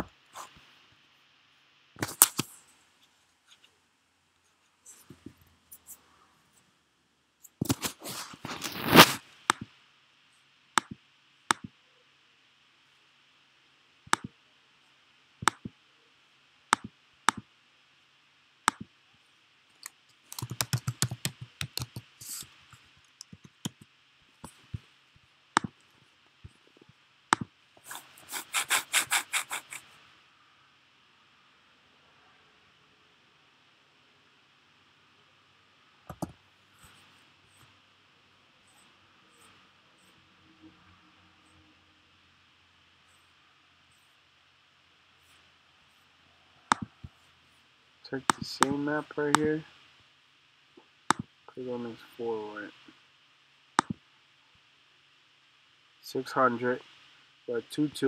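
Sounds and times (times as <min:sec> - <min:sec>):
faint steady hiss: 0:00.0 - 0:58.0
mouse clicks: 0:18.7 - 0:18.9, 0:19.8 - 0:22.5, 0:51.1 - 0:51.3, 0:53.8 - 0:54.0
keyboard typing: 0:19.8 - 0:22.4, 0:23.1 - 0:23.9, 0:36.1 - 0:36.4.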